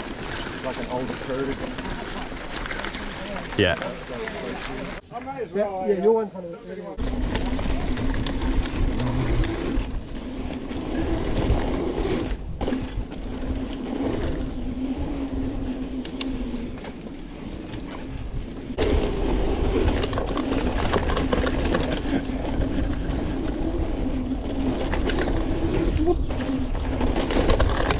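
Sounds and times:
bike tyres rumbling on dirt: 0.0 - 5.0, 7.0 - 27.9
bike chain slap rattling: 19.8 - 22.3.

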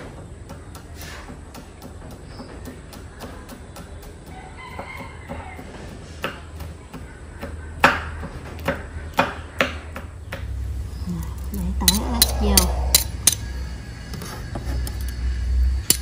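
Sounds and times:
rooster crowing: 4.3 - 6.0.

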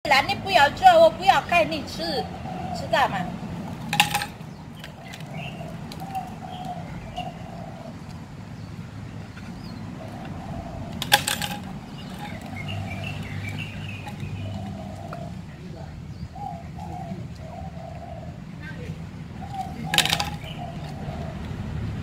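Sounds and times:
birds calling softly: 0.2 - 22.0
chain clattering against metal pipe: 3.8 - 4.4, 11.0 - 12.7, 19.9 - 20.5.

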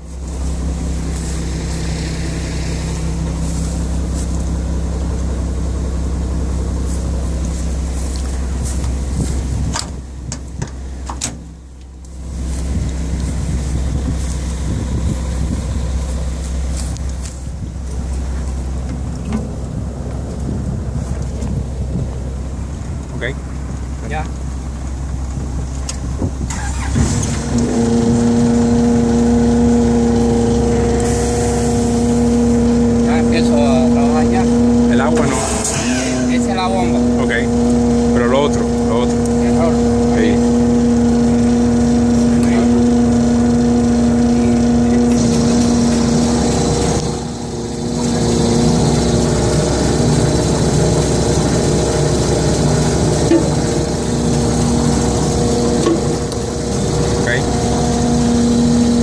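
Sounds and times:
diesel engine running: 0.0 - 59.0
paver machinery whine: 0.0 - 59.0
high hiss: 31.0 - 32.4.

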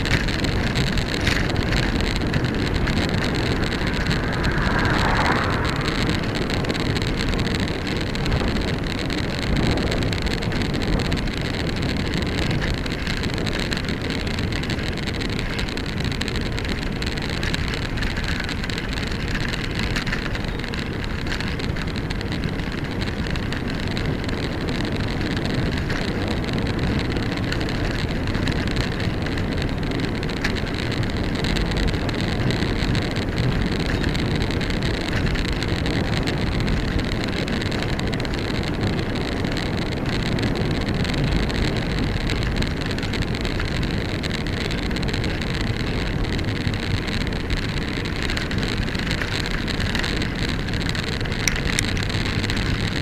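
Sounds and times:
road rumble: 0.0 - 53.0
wind on microphone: 0.0 - 53.0
car passing: 0.7 - 8.4.

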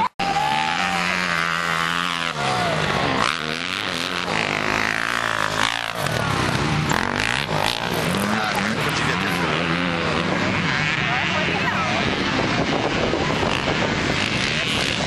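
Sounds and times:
dirt bike engines revving: 0.0 - 15.0.

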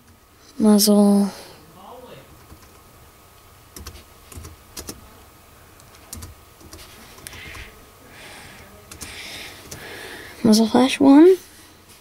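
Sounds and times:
keyboard typing clicks: 3.8 - 5.0, 5.9 - 7.6.

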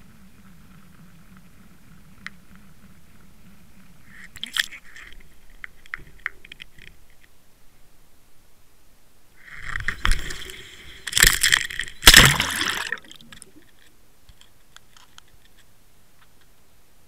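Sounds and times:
faint underwater ticks: 0.0 - 7.4
splashing into water: 11.2 - 13.6.

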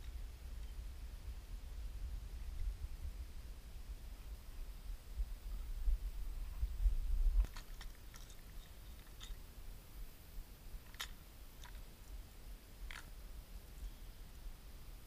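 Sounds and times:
low rumble on microphone: 0.0 - 7.7.

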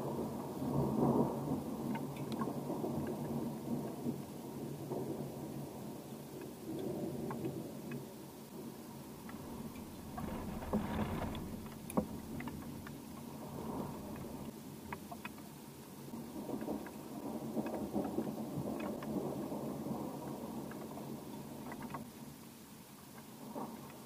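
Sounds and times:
light ticks: 1.9 - 3.3, 20.6 - 22.1
distant thunder rumbling: 9.0 - 14.5.

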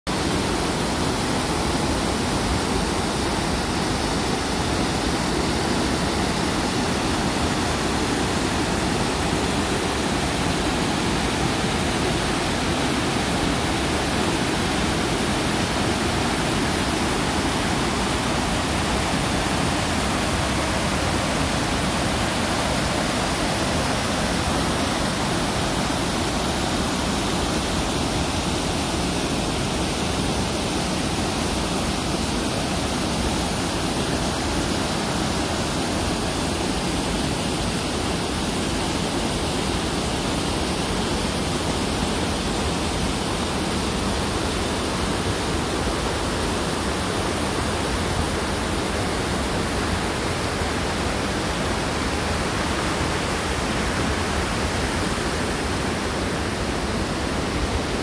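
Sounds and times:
waterfall rushing over weir: 0.1 - 58.0.

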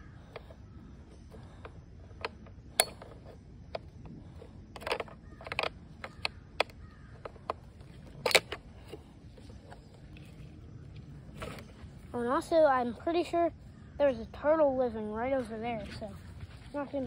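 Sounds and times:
climbing gear clicking and rattling: 0.0 - 10.4.

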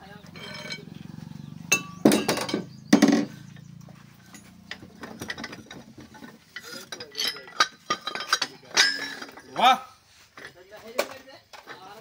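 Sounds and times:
sharp metal clanks: 0.3 - 1.0, 1.6 - 9.8.

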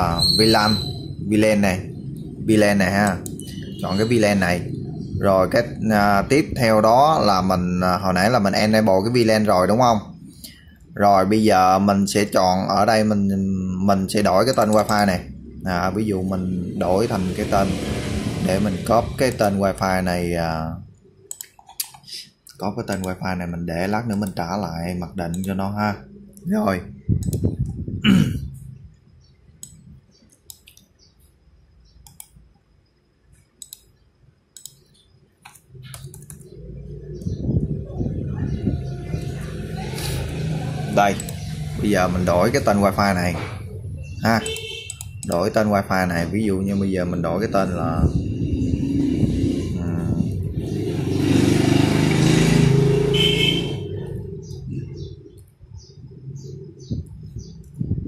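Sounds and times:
low rumble: 1.0 - 8.8, 15.0 - 20.0, 36.4 - 44.4
vehicle passing by: 15.1 - 20.0, 36.5 - 44.0, 47.7 - 55.1
laptop keys clicking: 34.6 - 36.4.

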